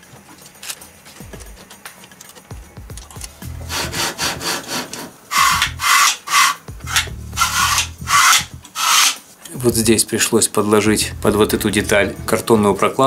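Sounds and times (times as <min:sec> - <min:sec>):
table rasping on guide rods: 0:03.6 - 0:09.3.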